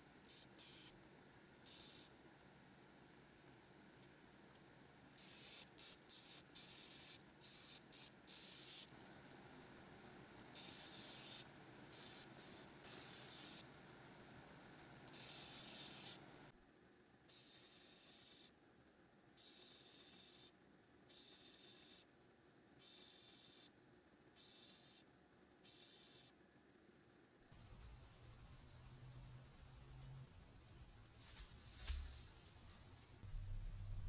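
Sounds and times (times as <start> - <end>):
steady low hum: 27.5 - 34.0.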